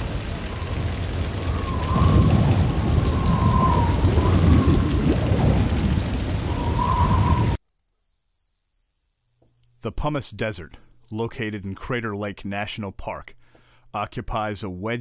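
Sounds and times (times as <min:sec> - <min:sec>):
low rumble of thunder: 0:00.0 - 0:07.6
rain: 0:00.0 - 0:07.6
faint wavering whistle tone: 0:01.4 - 0:05.0, 0:06.5 - 0:07.9.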